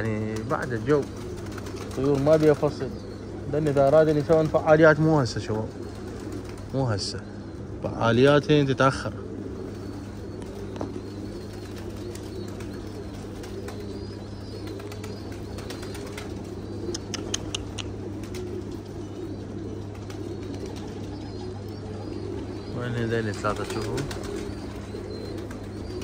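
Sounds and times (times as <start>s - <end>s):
pigeons cooing: 0.0s - 26.0s
steady low hum: 0.0s - 26.0s
sharp high clicks: 17.0s - 17.9s.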